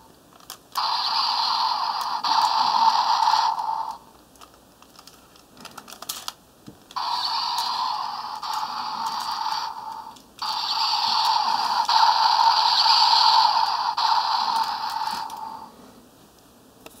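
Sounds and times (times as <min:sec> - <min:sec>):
toy electronic sound effect: 0:00.8 - 0:04.0, 0:07.0 - 0:15.7.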